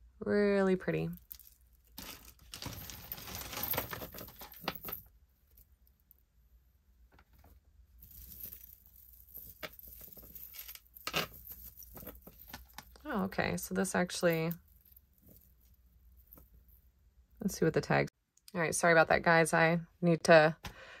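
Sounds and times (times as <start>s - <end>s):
metal chains clinking: 1.2s - 5.1s, 8.0s - 12.8s.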